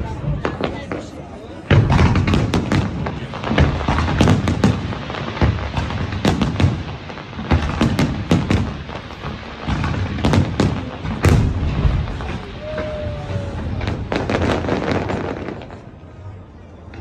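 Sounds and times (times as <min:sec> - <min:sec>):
fireworks bursting with sharp bangs: 0:00.0 - 0:16.3.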